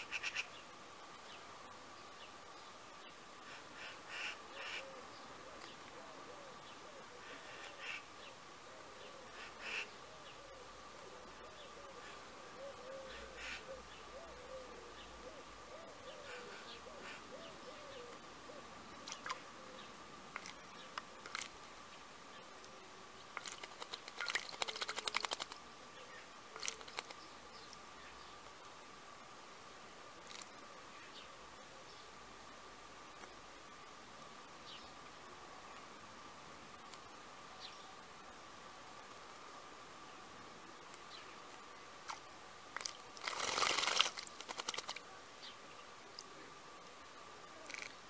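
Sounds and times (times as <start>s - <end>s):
bird splashing in water: 23.3s - 25.6s, 42.0s - 45.0s.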